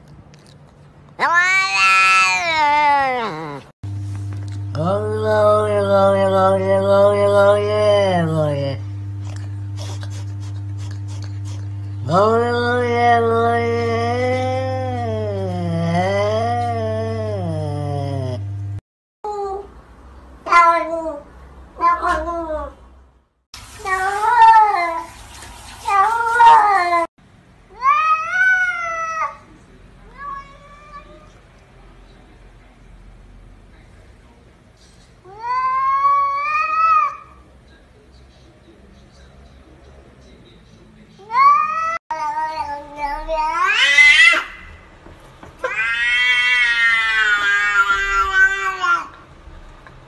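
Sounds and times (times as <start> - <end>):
cat meowing: 1.2 - 3.7, 21.8 - 22.8, 45.6 - 49.2.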